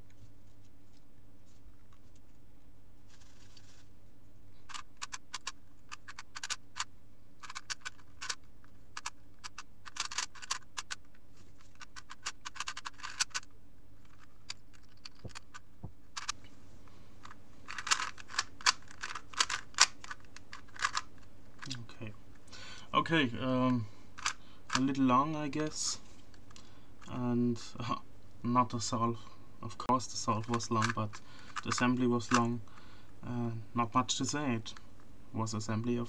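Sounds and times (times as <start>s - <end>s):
puzzle cube plastic clicks: 4.6s - 16.5s, 17.2s - 21.9s, 23.7s - 25.0s, 30.3s - 32.9s.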